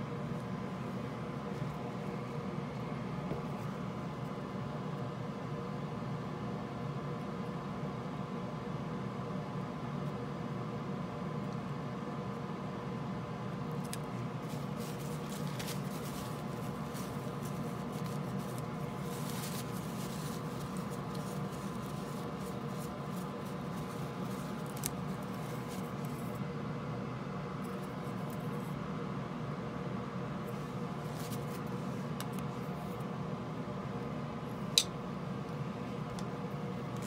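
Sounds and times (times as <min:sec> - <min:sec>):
steady hum and hiss: 0:00.0 - 0:37.0
cotton swab scratching circuit board: 0:14.4 - 0:26.2.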